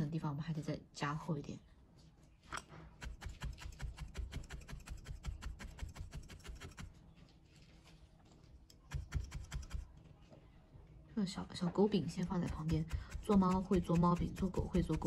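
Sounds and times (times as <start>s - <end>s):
felting needle poking: 2.9s - 7.0s, 8.8s - 9.9s, 12.0s - 15.0s.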